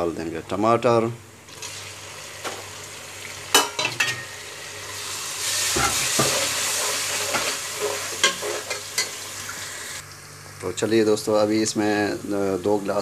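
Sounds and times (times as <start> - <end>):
tomatoes sizzling in a pot: 1.4 - 13.0.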